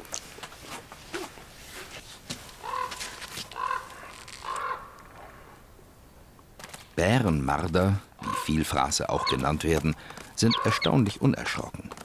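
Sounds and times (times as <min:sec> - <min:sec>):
crow calls: 0:02.6 - 0:05.5, 0:08.2 - 0:09.5, 0:10.4 - 0:11.0.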